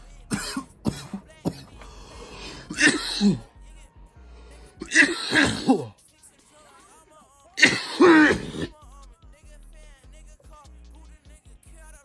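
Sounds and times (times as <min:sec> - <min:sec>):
background music: 0:00.0 - 0:12.0
man coughing: 0:00.2 - 0:03.5, 0:04.8 - 0:06.0, 0:07.6 - 0:08.8.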